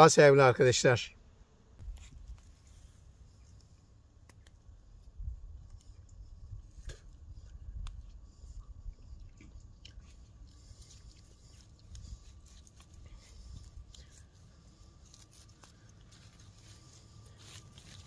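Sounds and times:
leaves crackling: 10.7 - 18.0.

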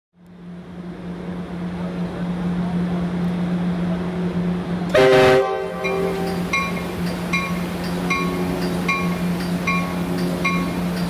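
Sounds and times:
train diesel hum: 0.2 - 11.0
train horn blast: 4.9 - 6.5.

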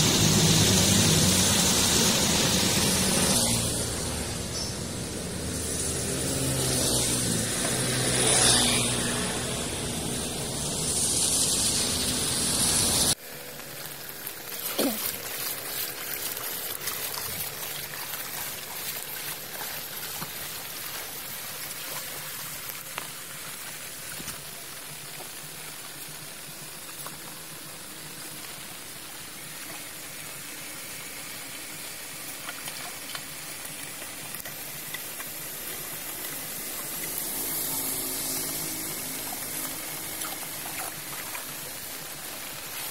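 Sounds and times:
road traffic: 0.0 - 13.2, 34.0 - 42.9
motor scooter passing on wet street: 0.0 - 13.7, 33.6 - 42.9
floodwater trickling and draining: 0.0 - 42.9
stick splashing in muddy water: 13.8 - 21.0.

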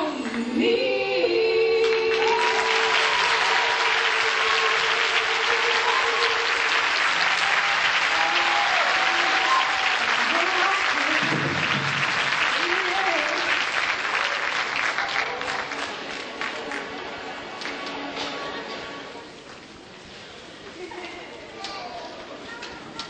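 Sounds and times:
audience applauding and cheering: 1.8 - 18.1
whoops: 2.1 - 10.1.

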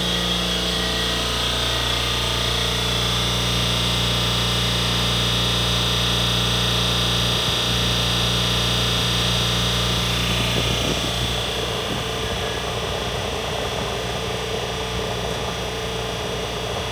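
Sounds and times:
electric train hum and whine: 0.0 - 16.9
train pulling away: 9.7 - 16.9.

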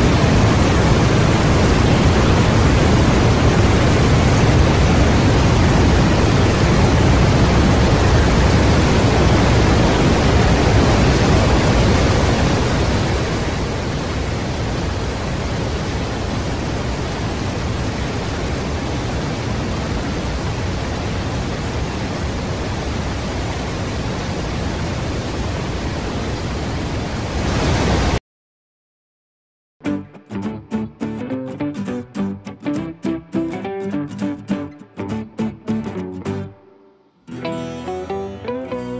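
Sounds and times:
water rushing over rocks: 0.0 - 28.2.

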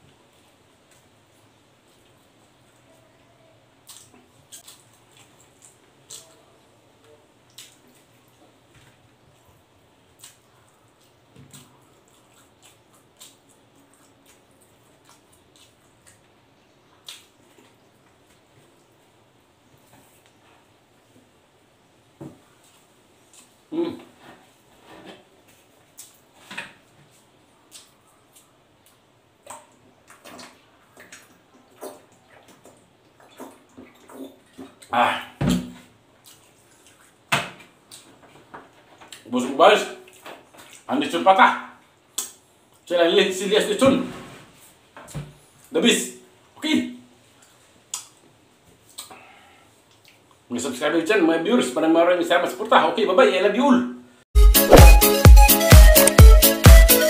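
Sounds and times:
faint room hum: 0.0 - 54.3
wet lip smacks: 48.9 - 49.2.

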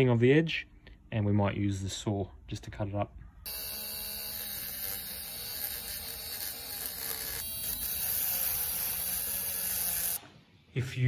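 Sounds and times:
rotary tool motor whining: 3.5 - 10.2.

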